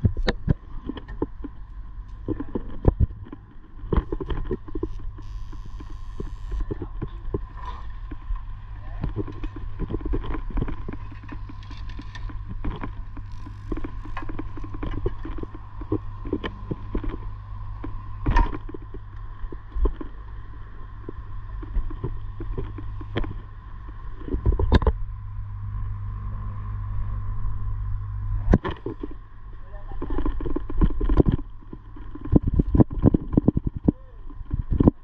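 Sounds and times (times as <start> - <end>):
steady low hum: 0.0 - 35.0.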